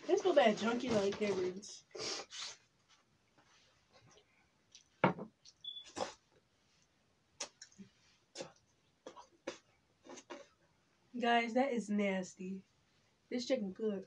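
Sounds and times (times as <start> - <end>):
person chewing: 4.7 - 6.3, 7.4 - 10.6.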